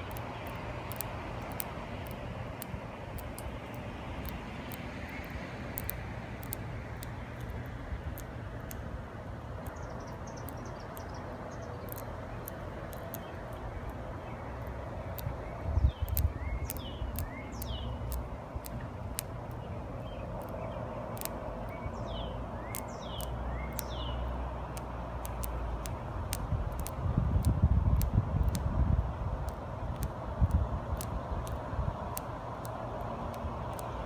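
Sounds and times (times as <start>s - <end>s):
small bird chirping: 0.0s - 2.2s, 9.6s - 25.6s
faint clicks: 0.0s - 8.8s, 9.6s - 21.8s, 22.7s - 24.1s, 24.7s - 28.7s, 29.4s - 34.0s
steady low rumble: 0.0s - 34.0s.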